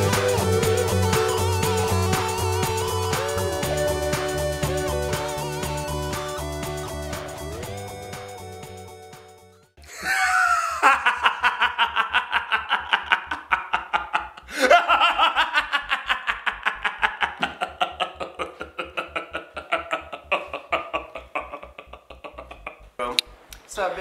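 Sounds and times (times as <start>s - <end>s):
woman laughing: 9.9s - 22.9s.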